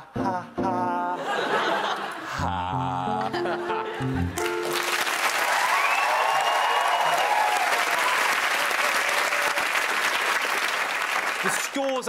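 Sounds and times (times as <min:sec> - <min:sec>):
audience applauding: 0:04.4 - 0:12.0
whoops: 0:05.4 - 0:09.7.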